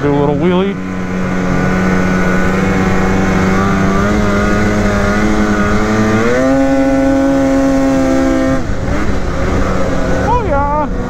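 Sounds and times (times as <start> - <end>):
snowmobile engine running hard: 0.0 - 11.0.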